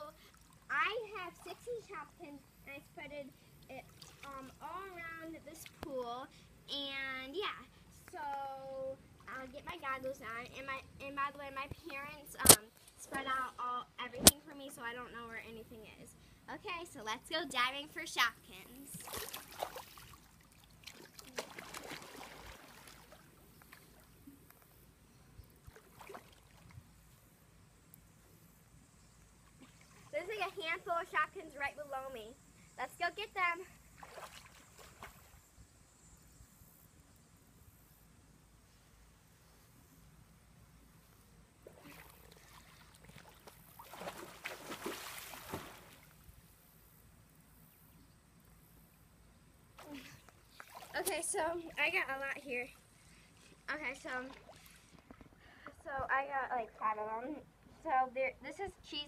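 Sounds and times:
pool water splashing: 0.0 - 2.3, 3.6 - 6.1, 18.2 - 24.5, 25.5 - 27.4, 29.4 - 32.1, 33.4 - 35.5, 41.4 - 46.6, 49.7 - 55.2.

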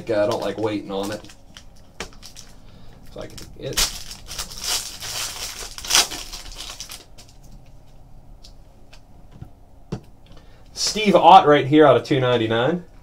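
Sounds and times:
foil wrapper crinkling and tearing: 0.0 - 7.6.

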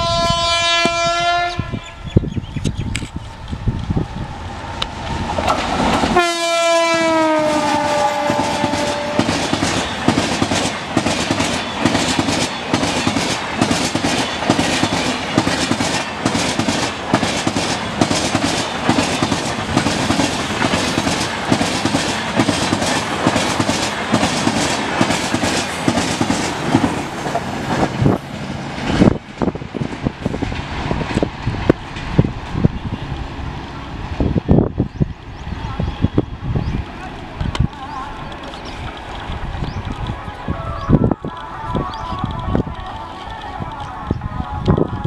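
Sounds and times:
locomotive horn: 0.0 - 2.0, 6.2 - 9.5
wheels clacking on rails: 2.6 - 33.4, 36.0 - 45.0.

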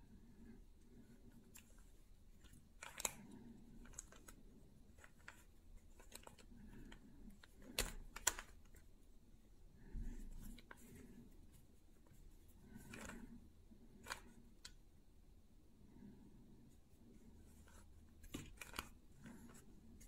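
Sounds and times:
puzzle cube clicking as turned: 2.4 - 8.8, 12.7 - 13.3, 13.9 - 14.8, 18.2 - 19.5.

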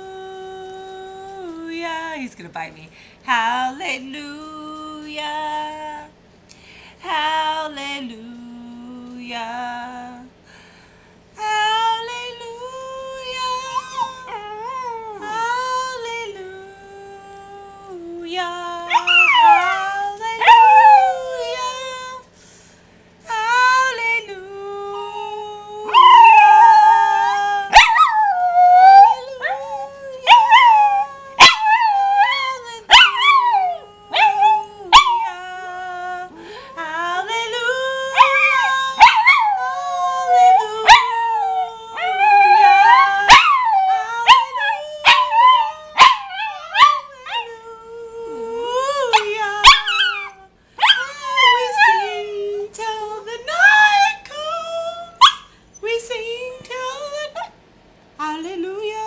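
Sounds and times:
woman singing: 0.0 - 6.2, 7.0 - 10.4, 11.4 - 22.4, 23.2 - 57.6, 58.2 - 59.0
dog howling: 18.9 - 22.1, 25.8 - 35.9, 37.5 - 47.5, 48.3 - 52.3.

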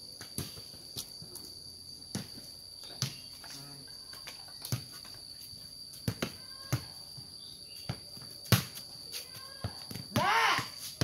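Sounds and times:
high-pitched insect drone: 0.0 - 11.0
ball thudding on concrete: 5.9 - 9.0, 9.6 - 11.0.

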